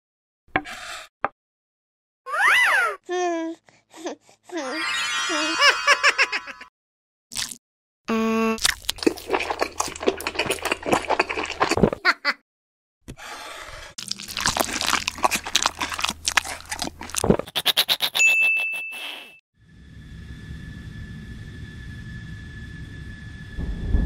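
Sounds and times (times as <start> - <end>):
jet airliner hum and whine: 19.6 - 24.0.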